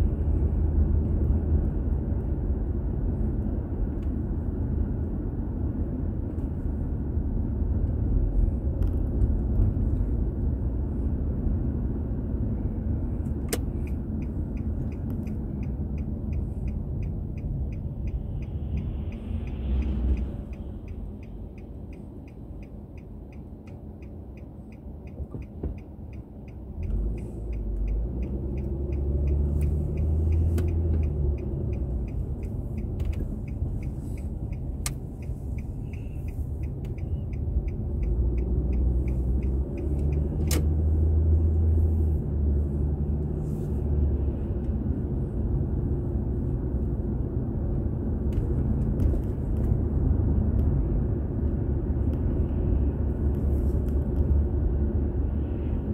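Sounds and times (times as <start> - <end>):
car engine rumble: 0.0 - 55.9
road noise: 0.0 - 55.9
turn signal clicking: 13.1 - 54.9.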